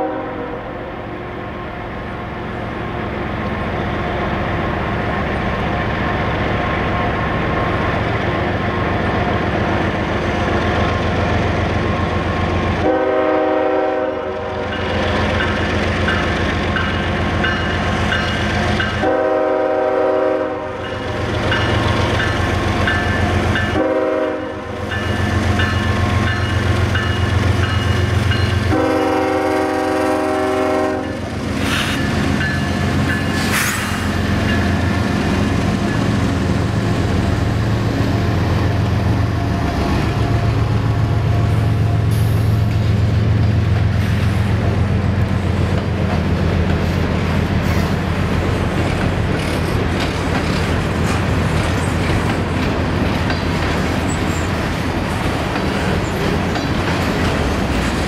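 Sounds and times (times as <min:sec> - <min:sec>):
train air horn blasts: 0:00.0 - 0:01.0, 0:12.8 - 0:14.7, 0:19.0 - 0:20.8, 0:23.7 - 0:24.8, 0:28.6 - 0:31.2
diesel locomotive engine rumble: 0:00.0 - 0:58.0.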